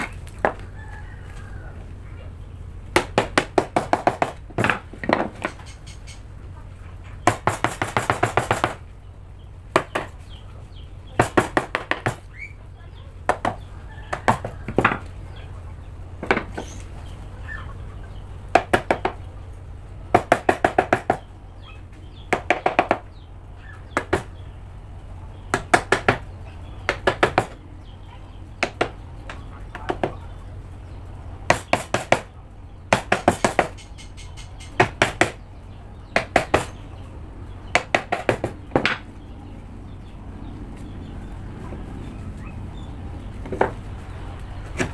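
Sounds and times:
hammer striking wood chisel: 0:02.9 - 0:05.7, 0:07.2 - 0:08.8, 0:09.7 - 0:10.2, 0:11.2 - 0:12.3, 0:13.3 - 0:15.1, 0:16.2 - 0:16.8, 0:18.5 - 0:19.2, 0:20.1 - 0:21.2, 0:22.3 - 0:23.1, 0:23.9 - 0:24.4, 0:25.5 - 0:26.3, 0:26.9 - 0:27.6, 0:28.6 - 0:30.2, 0:31.5 - 0:32.3, 0:32.9 - 0:33.9, 0:34.7 - 0:35.4, 0:36.0 - 0:36.8, 0:37.7 - 0:39.1.

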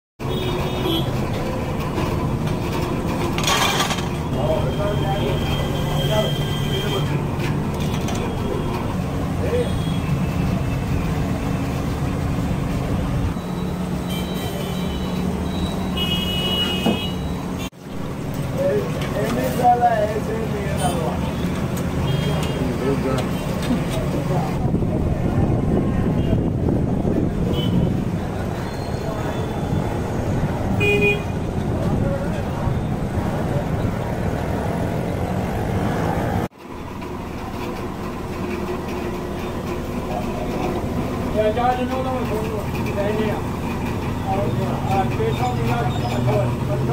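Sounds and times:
street traffic rumble: 0:00.2 - 0:46.9
steady kitchen roar: 0:36.5 - 0:46.9.

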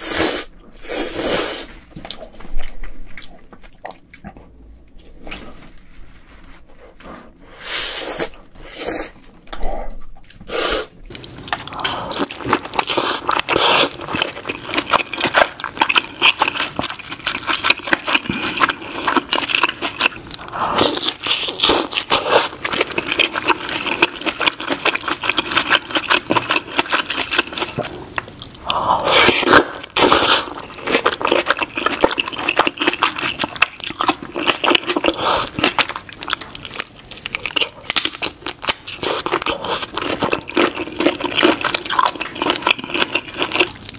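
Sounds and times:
wet chewing and crackling shell: 0:11.1 - 0:43.9.

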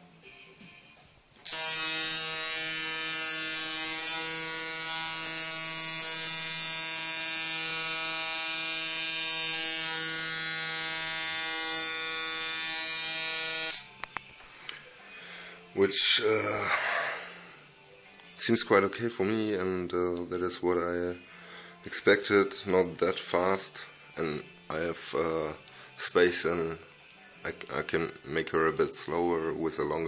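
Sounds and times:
tattoo machine buzzing: 0:01.4 - 0:14.0.

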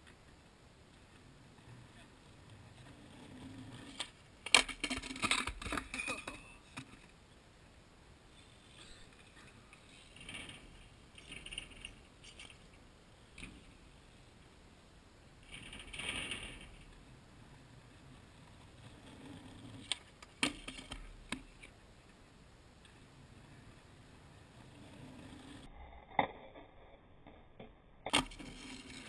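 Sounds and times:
skateboard wheels rolling on concrete: 0:00.0 - 0:07.4, 0:15.2 - 0:26.6, 0:27.2 - 0:29.0.

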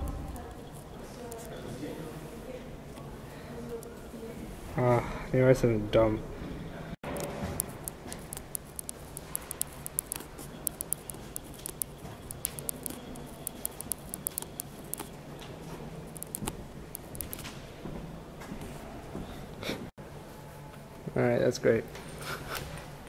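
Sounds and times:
pen scratching on paper: 0:07.1 - 0:15.1.

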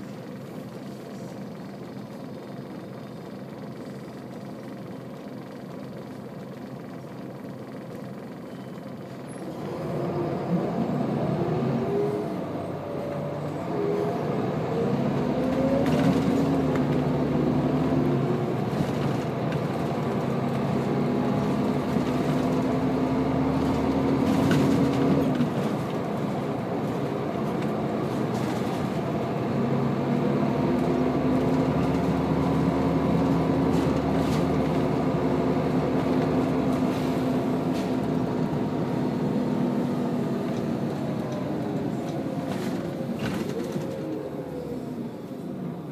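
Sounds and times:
bus diesel engine: 0:00.0 - 0:45.9.

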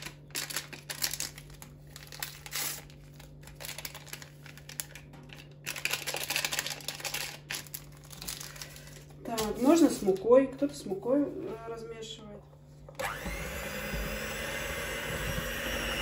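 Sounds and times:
paper sachets crinkling: 0:00.0 - 0:10.4.

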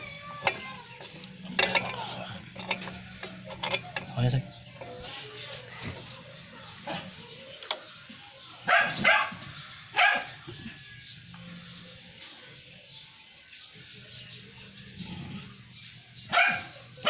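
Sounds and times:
dog barking: 0:08.6 - 0:09.4, 0:10.0 - 0:10.3, 0:16.3 - 0:16.8.

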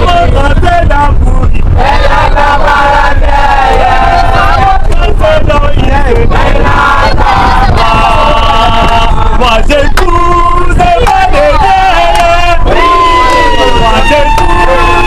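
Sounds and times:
bus engine rumble: 0:00.0 - 0:15.0
men chanting together: 0:01.8 - 0:13.6.

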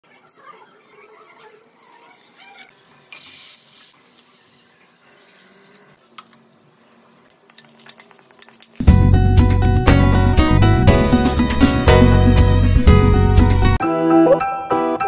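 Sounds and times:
faint kitchen sounds: 0:00.0 - 0:08.8.

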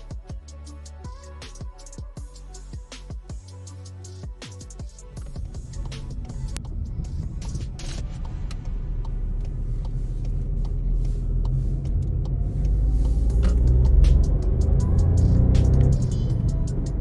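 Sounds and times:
car engine and road noise: 0:04.2 - 0:17.0.

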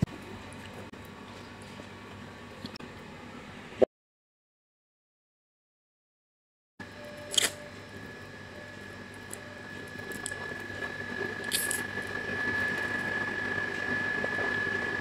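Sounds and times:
faint hum: 0:06.8 - 0:15.0.

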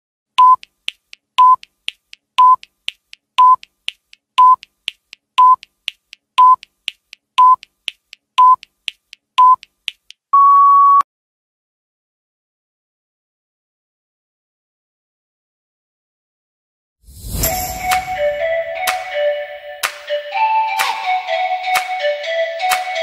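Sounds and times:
electronic timer beeps: 0:00.4 - 0:00.7, 0:01.4 - 0:01.6, 0:02.4 - 0:02.6, 0:03.4 - 0:03.6, 0:04.4 - 0:04.7, 0:05.4 - 0:05.6, 0:06.4 - 0:06.7, 0:07.4 - 0:07.6, 0:08.4 - 0:08.6, 0:09.4 - 0:09.6, 0:10.3 - 0:11.0
quiet ticks: 0:00.4 - 0:10.2.

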